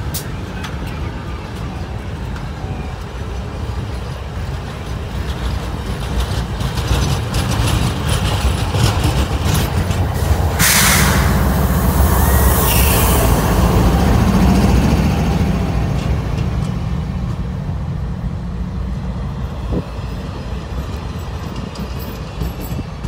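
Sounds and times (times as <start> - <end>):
train wheels rumbling on rails: 0.0 - 23.0
hiss: 10.3 - 13.4.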